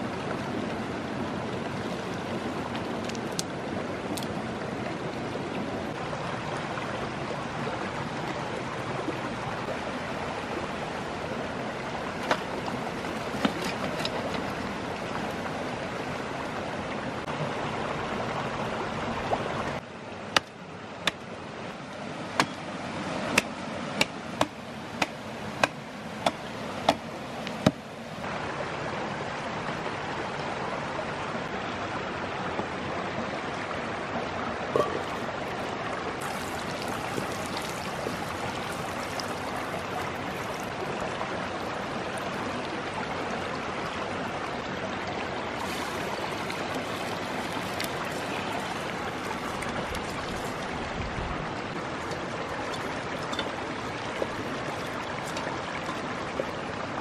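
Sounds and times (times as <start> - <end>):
stream rushing over rocks: 0.0 - 57.0
axe chopping tree trunk: 20.4 - 21.2, 22.3 - 22.6, 23.3 - 27.8.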